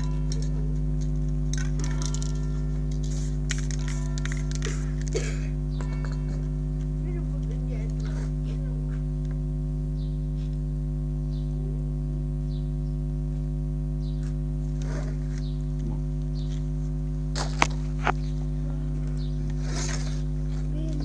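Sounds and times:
electrical hum: 0.0 - 21.0.

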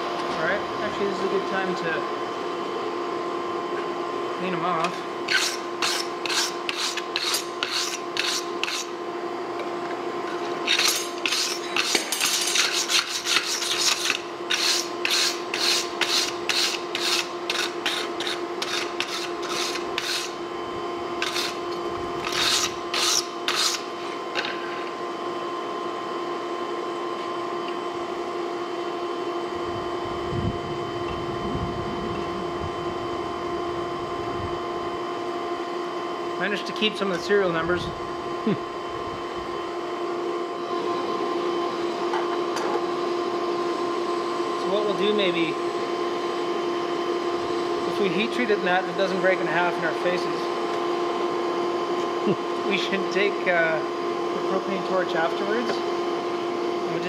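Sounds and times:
steady hum: 0.0 - 57.0
wire brush scrubbing metal: 5.3 - 9.0, 10.6 - 20.4, 21.2 - 21.6, 22.2 - 23.9.

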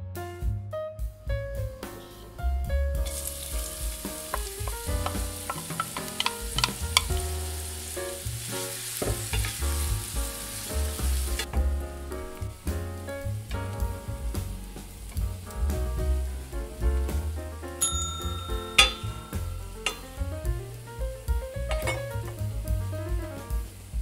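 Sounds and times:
onions sizzling in oil: 3.0 - 16.5, 17.2 - 22.8, 23.4 - 24.0
wooden spatula clicking on pan: 4.3 - 7.2.

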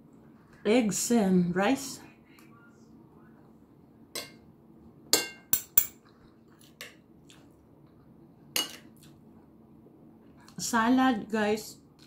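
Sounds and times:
metal spoon clinking on plate: 5.2 - 6.0.

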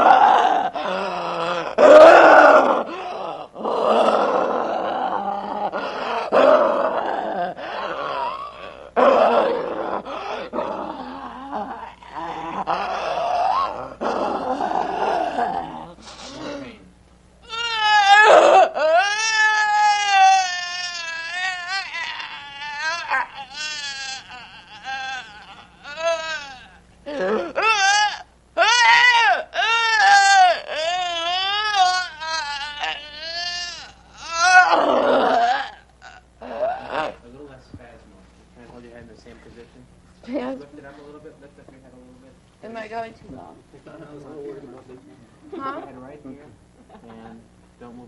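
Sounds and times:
person making monster growls: 0.0 - 16.8, 17.5 - 37.2
person wailing shrilly: 17.5 - 37.2.

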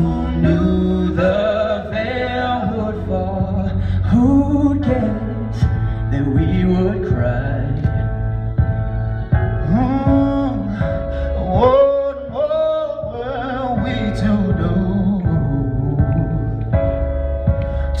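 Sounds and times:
male vocal trio singing: 0.0 - 8.1
held musical backing: 0.0 - 18.0.

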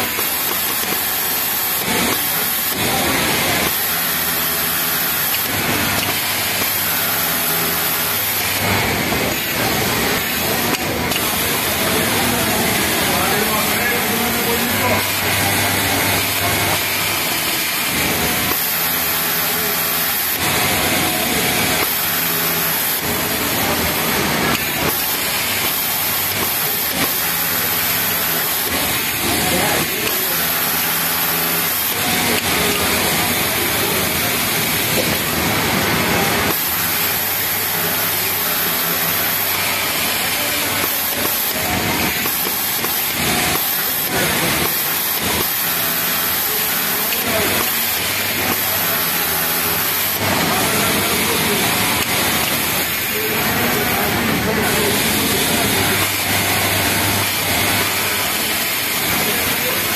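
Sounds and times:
hiss of factory machinery: 0.0 - 59.9
overlock sewing machine sewing: 0.0 - 59.9.

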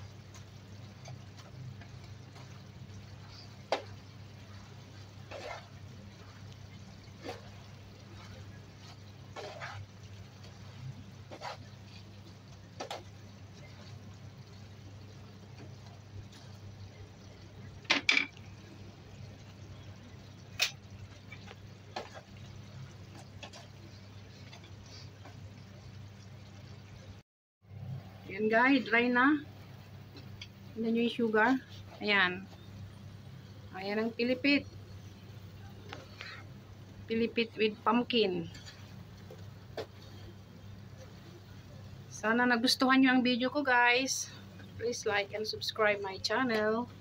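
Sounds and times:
sugar syrup bubbling: 0.0 - 27.2, 29.1 - 42.2
faint steady hum: 0.0 - 47.0
wooden spatula scraping frying pan: 4.5 - 6.5, 7.1 - 12.1.

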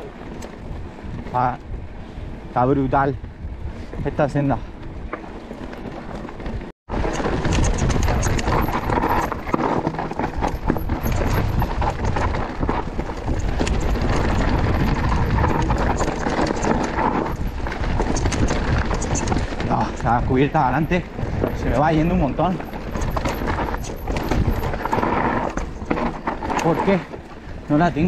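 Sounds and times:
bike rattling over bumps: 0.0 - 28.0.

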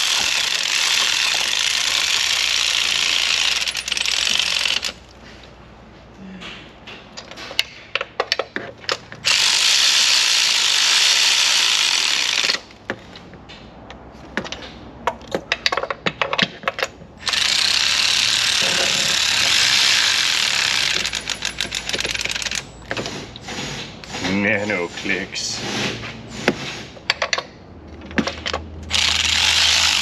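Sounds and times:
ratchet clicking: 28.8 - 30.0.

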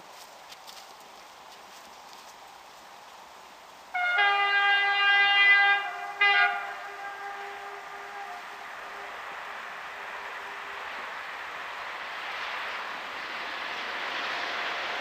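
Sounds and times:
train horn blasts: 3.9 - 11.1
train rushing: 5.6 - 15.0.

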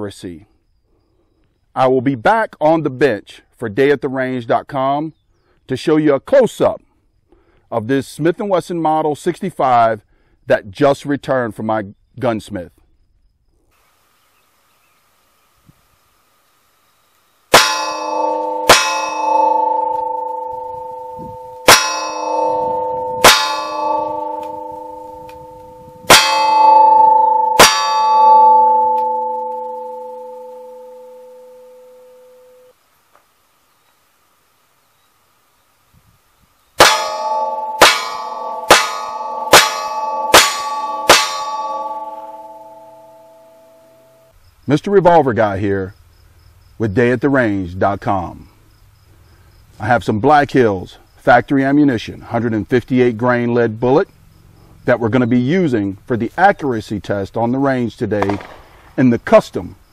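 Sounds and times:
steel plate target ringing: 17.5 - 32.7, 36.8 - 44.3
revolver shots: 58.2 - 59.0.

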